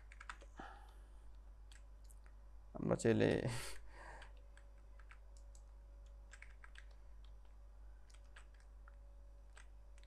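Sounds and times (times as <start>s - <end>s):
keyboard and mouse clicking: 0.0s - 2.4s, 4.2s - 10.0s
low hum: 3.6s - 10.0s.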